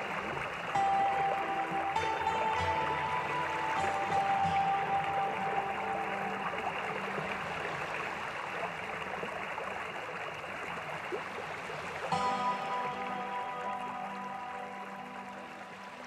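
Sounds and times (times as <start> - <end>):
ambient music: 0.0 - 8.3, 12.1 - 16.0.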